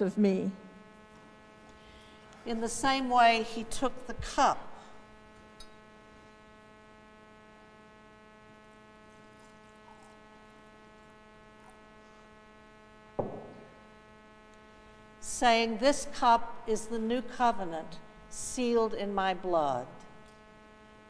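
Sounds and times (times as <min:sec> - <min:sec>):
electrical mains hum: 0:00.0 - 0:21.0
pitcher knocking on table: 0:13.2 - 0:13.7.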